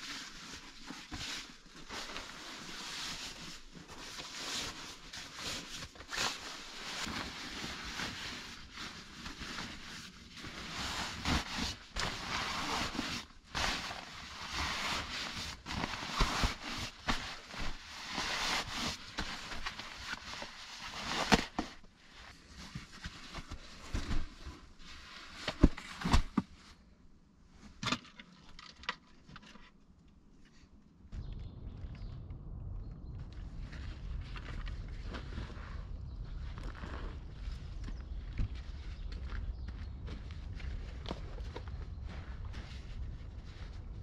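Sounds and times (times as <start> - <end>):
synthetic fabric rustling: 0.0 - 26.4.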